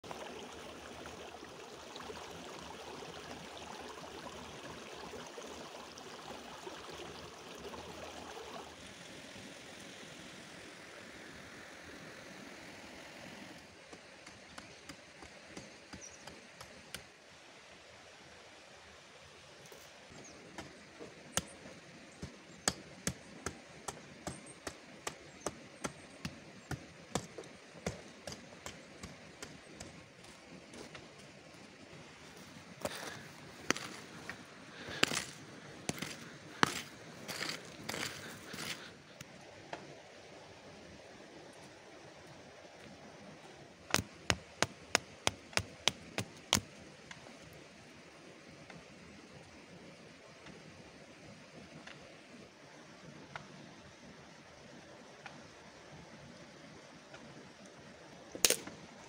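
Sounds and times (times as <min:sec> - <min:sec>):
stream babbling over stones: 0:00.0 - 0:48.4
hand hoe chopping stony ground: 0:20.6 - 0:31.1, 0:32.8 - 0:38.9, 0:43.9 - 0:46.7.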